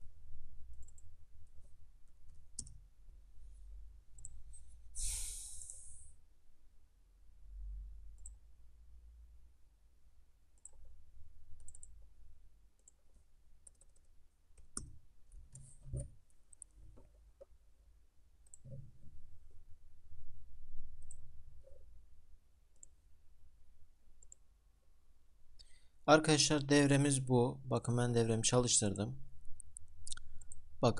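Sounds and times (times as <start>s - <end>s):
computer mouse clicks: 0.7s - 1.6s, 2.2s - 2.8s, 4.2s - 4.7s, 10.6s - 11.0s, 11.6s - 12.0s, 13.6s - 17.5s, 18.4s - 18.9s, 21.0s - 21.8s, 22.8s - 23.0s, 24.2s - 24.4s.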